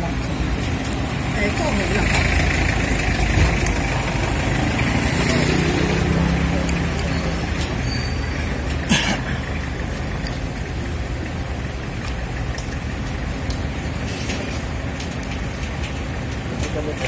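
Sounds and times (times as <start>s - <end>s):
gas burner rumbling: 0.0s - 17.0s
street traffic: 0.0s - 17.0s.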